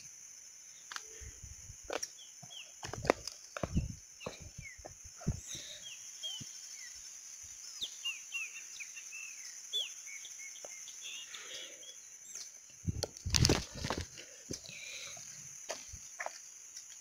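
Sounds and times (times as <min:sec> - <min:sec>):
birds chirping: 0:00.7 - 0:12.9.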